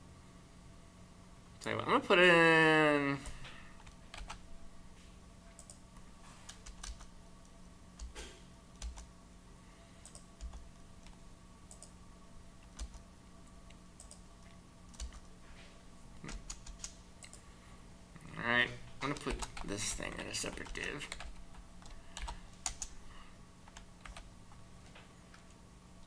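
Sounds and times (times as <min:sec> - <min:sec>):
faint low hum: 0:00.0 - 0:26.0
keyboard key presses: 0:14.9 - 0:15.3.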